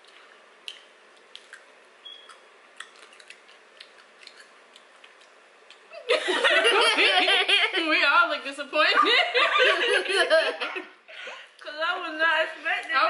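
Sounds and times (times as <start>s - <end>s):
people chewing: 0.0s - 6.6s.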